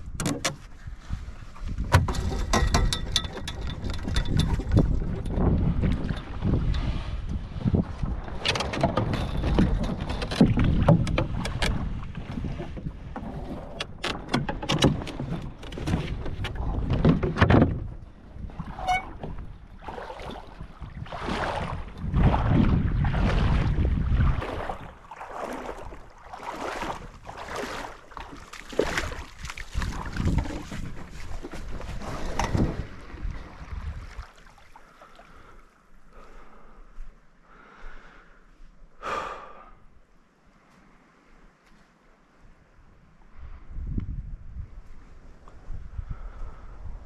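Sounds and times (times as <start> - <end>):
wind buffeting microphone: 0.0 - 27.9, 28.8 - 34.4, 42.8 - 47.0
water splashing along hull: 0.0 - 37.8
high squeak: 18.8 - 19.2.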